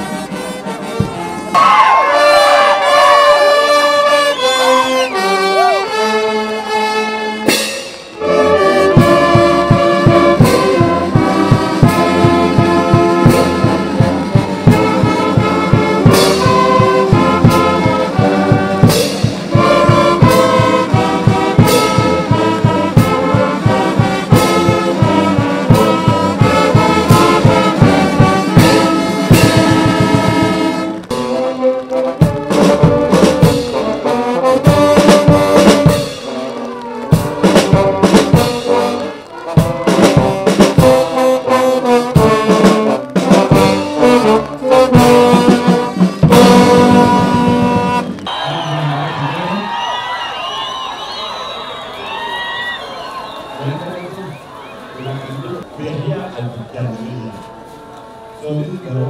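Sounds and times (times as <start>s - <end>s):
brass horns playing chords: 0.0s - 59.0s
bass drum beat: 8.6s - 48.3s.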